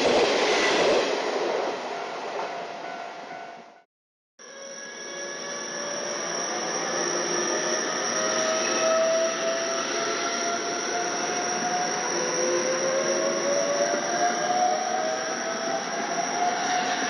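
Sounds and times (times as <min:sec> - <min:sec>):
train traction motors whining: 0:04.4 - 0:17.0.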